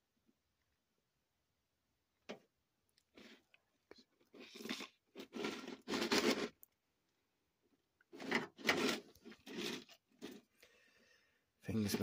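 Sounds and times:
plastic containers rustling and scraping: 3.1s - 3.5s, 4.2s - 6.7s, 8.1s - 10.6s, 11.7s - 12.0s.

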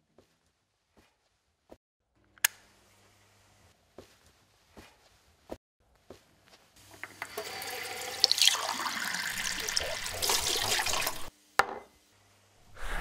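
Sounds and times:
hands washing under water: 7.2s - 11.3s.

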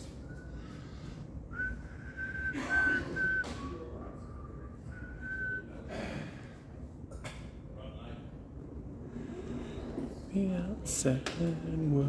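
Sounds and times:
person whistling: 0.1s - 0.8s, 1.5s - 5.7s.

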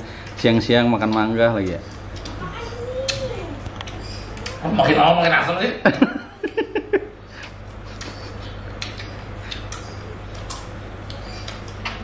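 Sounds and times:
steady low hum: 0.0s - 12.0s
faint crunchy clicks: 3.0s - 4.6s, 7.4s - 12.0s
chewing crisp mango: 7.4s - 12.0s.

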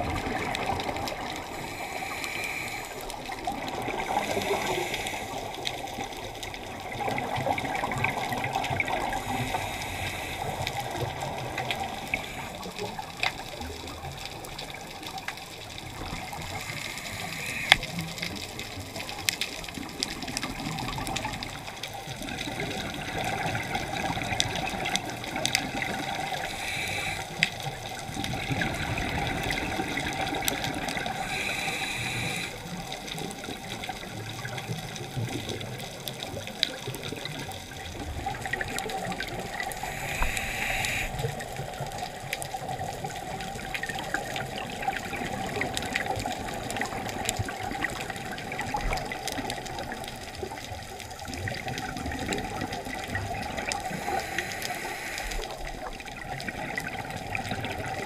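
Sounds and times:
regulator hissing: 1.5s - 3.1s, 16.5s - 18.0s, 26.2s - 27.4s, 31.2s - 32.6s, 39.8s - 41.3s, 53.9s - 55.4s.

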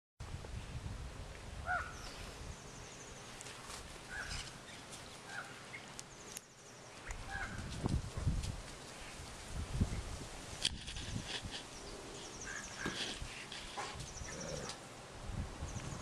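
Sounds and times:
small birds chirping: 1.7s - 7.9s, 11.6s - 14.8s, 15.6s - 16.0s.

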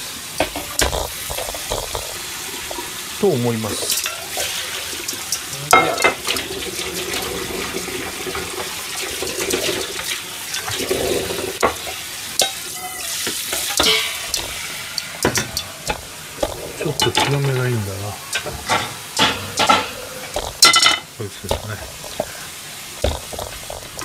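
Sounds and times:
tap running into metal sink: 3.8s - 22.4s
metal pan clinking against sink: 3.9s - 6.5s, 11.6s - 21.7s.

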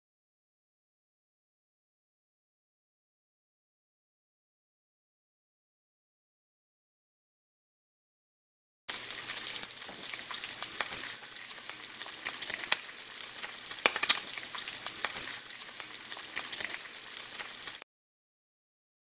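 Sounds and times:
food sizzling in a pan: 8.9s - 17.8s.

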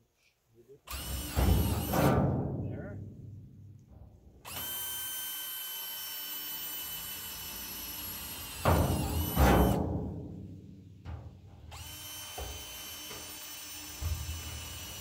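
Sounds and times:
drill bit cutting sheet metal: 0.9s - 2.1s, 4.5s - 9.8s, 11.7s - 15.0s
power drill whining: 0.9s - 2.1s, 4.4s - 9.8s, 11.7s - 15.0s.

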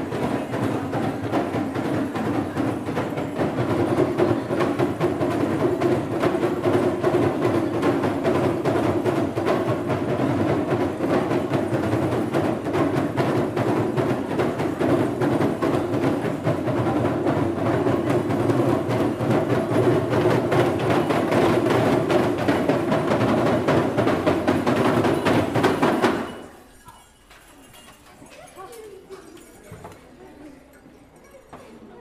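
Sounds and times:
hand drums beaten rhythmically: 0.0s - 26.4s.

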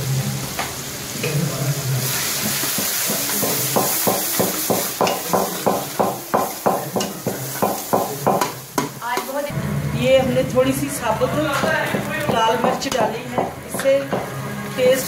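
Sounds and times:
food sizzling in hot oil: 0.0s - 9.5s.

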